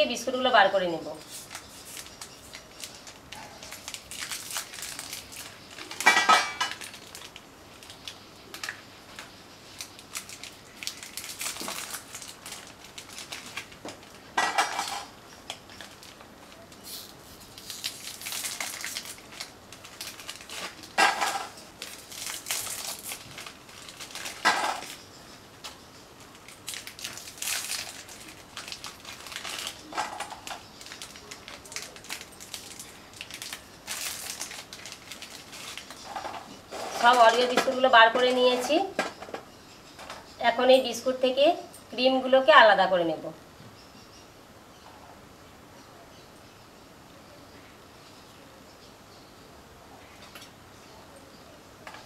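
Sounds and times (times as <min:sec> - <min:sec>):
plastic wrappers crinkling: 0:00.3 - 0:39.4
biscuits clinking on steel plate: 0:05.9 - 0:06.9, 0:14.4 - 0:15.1, 0:20.6 - 0:21.7.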